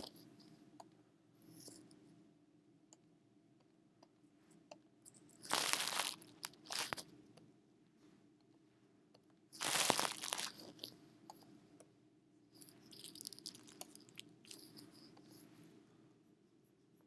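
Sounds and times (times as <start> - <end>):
close crunching and crackling: 5.1 - 7.1, 9.5 - 11.0, 12.6 - 15.1.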